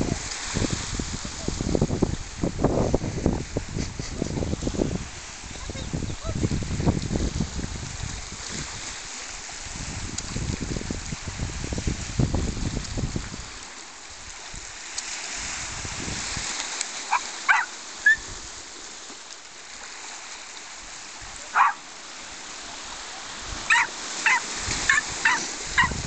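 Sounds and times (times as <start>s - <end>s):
waves washing over shingle: 0.0s - 26.0s
small dog yapping: 17.1s - 18.2s, 21.5s - 21.8s, 23.7s - 26.0s.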